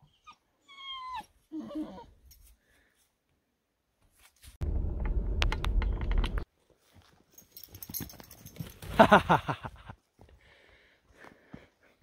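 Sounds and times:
dog whining yelps: 0.0 - 2.1
rumbling noise with sharp clicks: 4.6 - 6.5.

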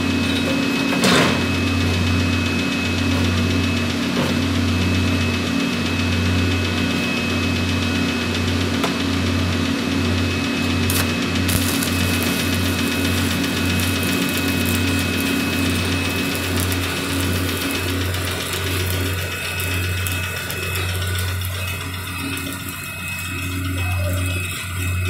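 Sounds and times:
welding arc crackling: 1.6 - 25.0
low hum: 10.3 - 25.0.

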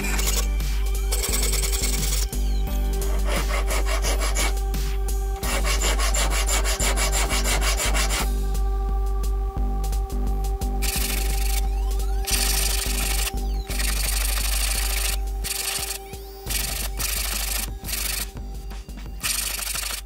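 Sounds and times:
saw and file rasping on metal: 3.0 - 8.3.

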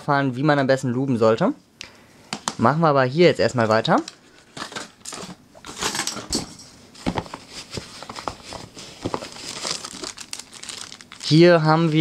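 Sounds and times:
paper rustling: 7.0 - 12.0.

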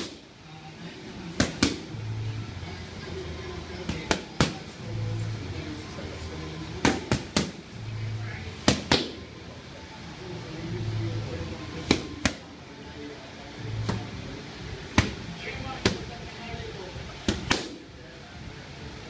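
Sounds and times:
boxing gloves smacking focus mitts: 1.4 - 1.9.

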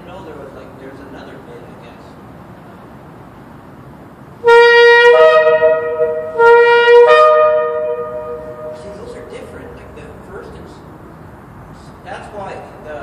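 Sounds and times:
shofar blasts: 4.4 - 9.4.

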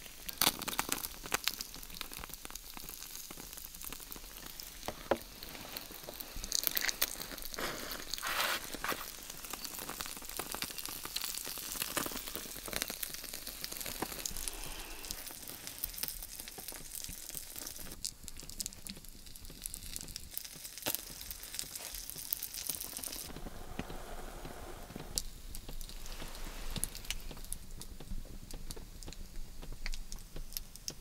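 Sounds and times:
candle flames crackling and popping: 0.0 - 31.0.

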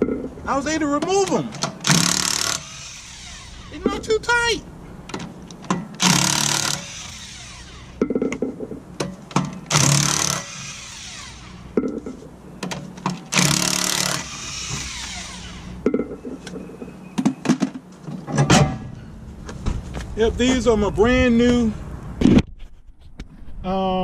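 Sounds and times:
impact wrench hammering: 1.0 - 4.1, 5.1 - 16.4.

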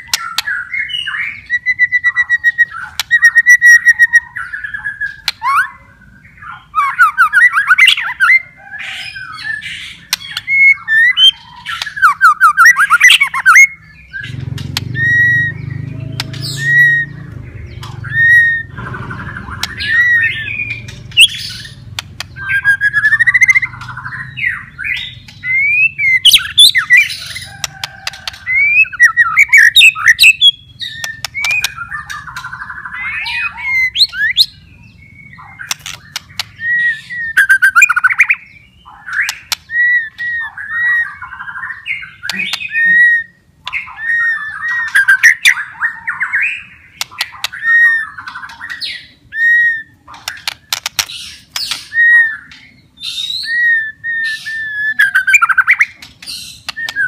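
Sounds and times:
bird whistling song: 0.0 - 57.0
bird clicking rattles: 50.2 - 51.8.

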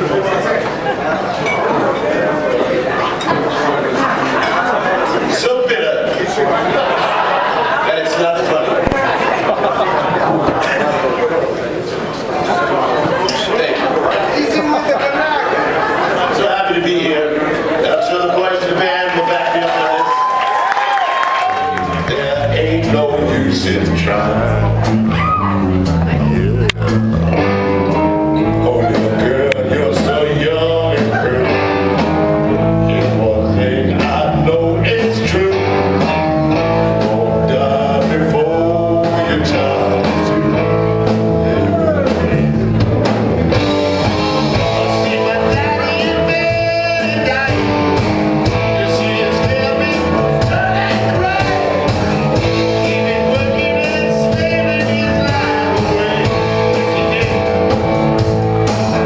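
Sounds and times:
electric guitars: 21.4 - 59.0
drum kit: 21.6 - 59.0
man singing: 21.9 - 25.1, 26.1 - 27.1, 28.4 - 42.7, 43.8 - 57.7.

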